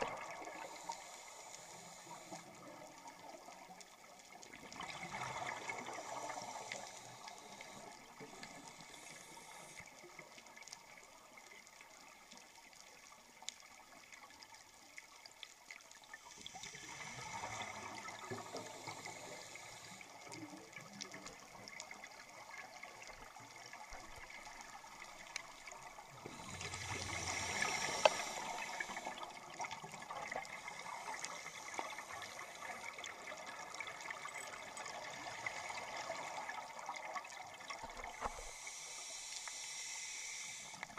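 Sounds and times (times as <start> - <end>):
underwater exhaust bubbles: 0.0 - 40.9
small clicks: 27.6 - 28.5.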